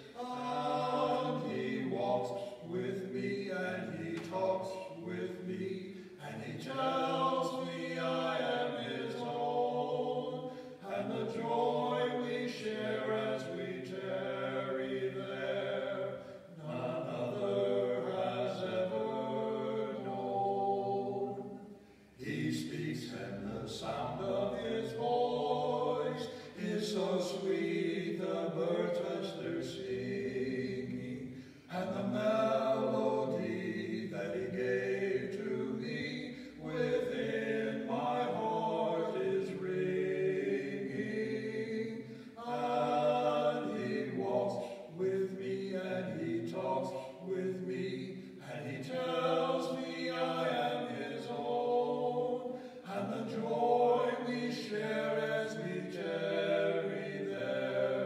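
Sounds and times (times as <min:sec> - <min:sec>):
men singing a cappella hymn: 0:00.0 - 0:58.0.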